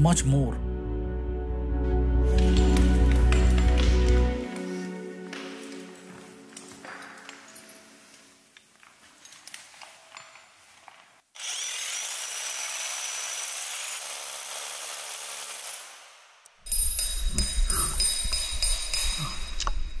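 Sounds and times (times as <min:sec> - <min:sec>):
power drill boring into rock: 0:11.4 - 0:16.0.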